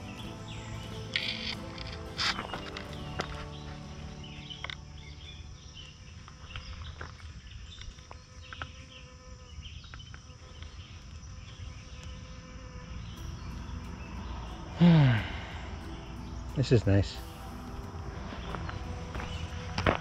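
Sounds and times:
insect buzzing: 0.0 - 16.6
faint high chirps: 12.9 - 20.0.

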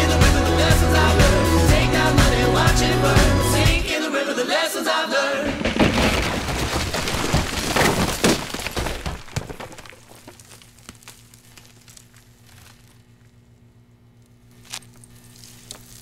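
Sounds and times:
concrete cracking and breaking: 5.4 - 13.0
falling debris: 5.4 - 13.0.

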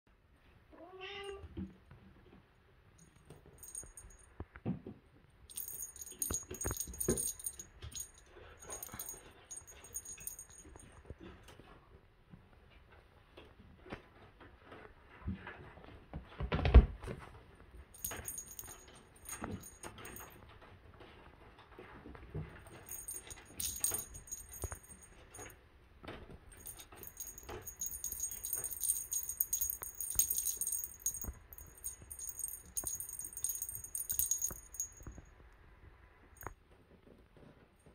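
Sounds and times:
jingle bell jingling: 3.0 - 4.3, 5.5 - 11.0, 18.0 - 20.4, 22.6 - 25.5, 26.5 - 35.3
handling knocks and rustles: 3.0 - 11.8, 13.4 - 35.4.

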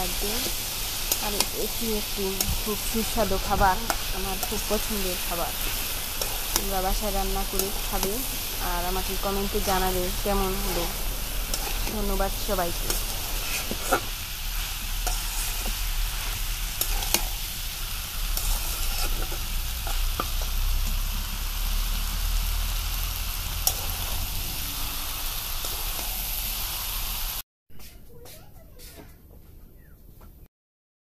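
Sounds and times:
food sizzling in a wok: 0.0 - 27.4
spatula stirring: 0.4 - 20.6.

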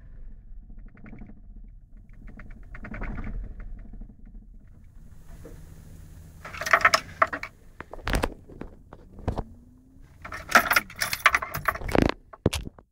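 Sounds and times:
faint low hum inside car: 1.6 - 12.5
metallic jingling and clicking: 4.7 - 12.7.

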